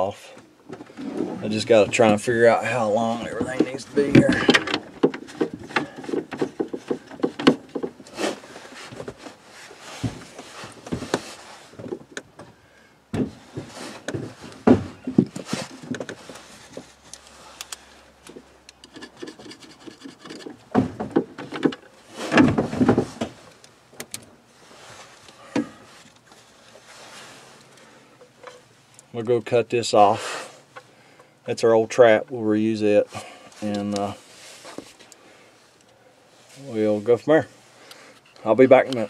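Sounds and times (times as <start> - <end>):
plastic pipe rubbing and scraping: 0.7 - 12.1, 13.2 - 17.6, 18.3 - 23.6.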